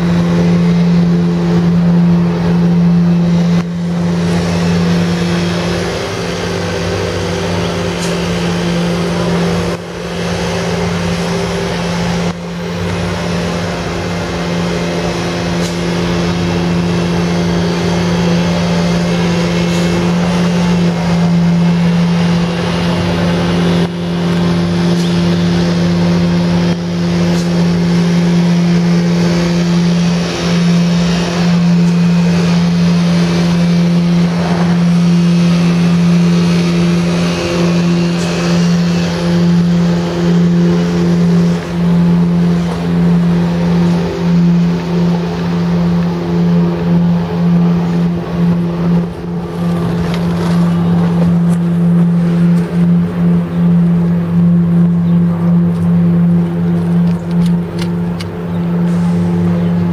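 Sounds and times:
engine droning: 0.0 - 59.9
street and work-site noise: 0.0 - 59.9.

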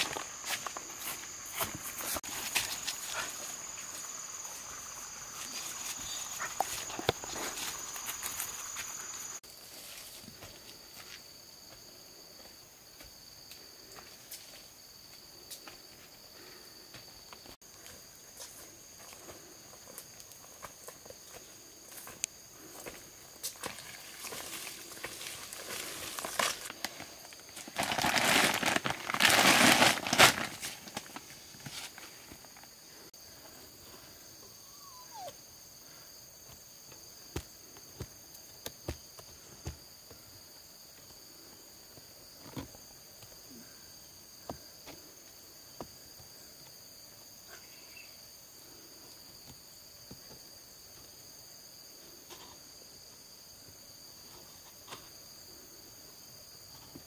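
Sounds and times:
insect chorus: 0.0 - 57.0
footsteps on dry leaves: 23.5 - 32.0
plastic sack crinkling: 27.6 - 31.2.

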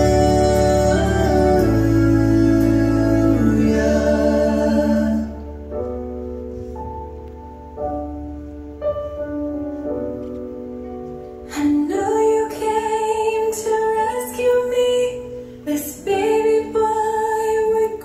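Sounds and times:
worship music with singing: 0.0 - 6.0
soft held keyboard chords: 0.0 - 18.0.

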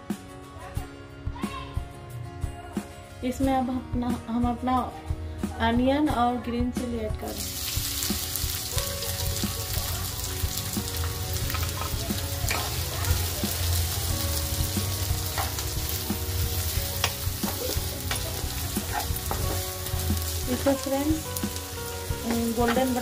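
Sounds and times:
onions sizzling in hot oil: 7.3 - 23.0
wooden spatula scraping pan: 17.0 - 19.8.

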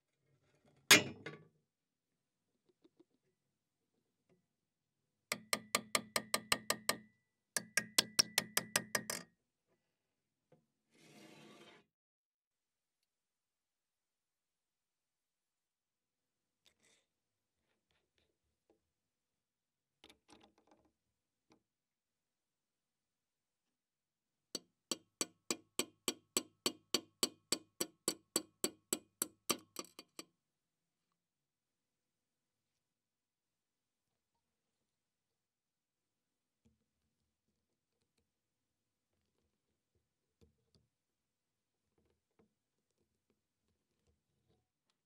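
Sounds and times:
hammer striking steel bracket: 0.9 - 1.3.

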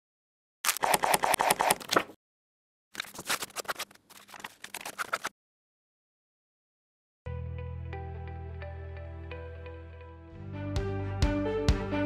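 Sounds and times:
paper rustling and folding: 3.0 - 5.3.

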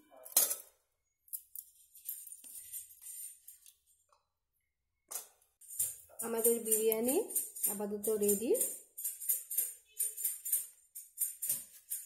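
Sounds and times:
background music with jingling percussion: 5.6 - 12.0.

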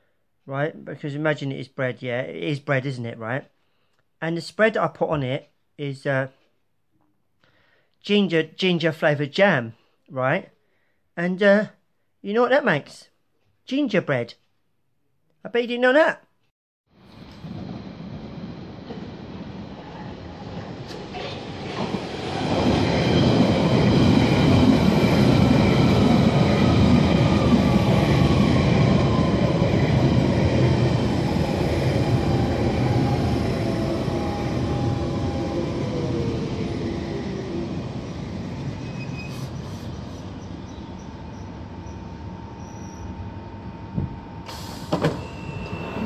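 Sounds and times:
standing train hum: 17.0 - 46.0
train wheels rumbling on rail: 17.0 - 46.0
traction motor whine: 41.5 - 46.0.

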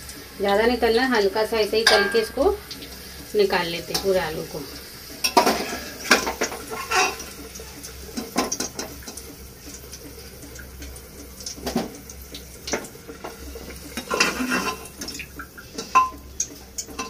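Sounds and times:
spoon scraping a metal pot: 5.2 - 7.3, 14.0 - 14.9.

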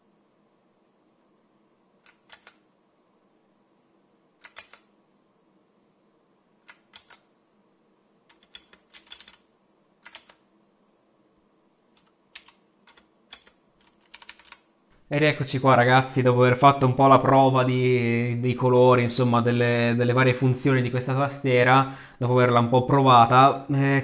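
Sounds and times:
mechanical keyboard clicks: 2.0 - 2.6, 4.4 - 4.9, 6.6 - 7.3, 8.3 - 9.4, 10.0 - 10.4, 11.9 - 14.6.

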